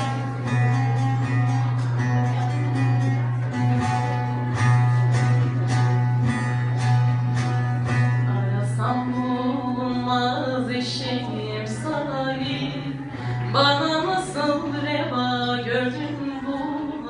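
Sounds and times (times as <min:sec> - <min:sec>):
strummed long-necked lute: 0:00.0 - 0:17.0
person singing: 0:07.9 - 0:17.0.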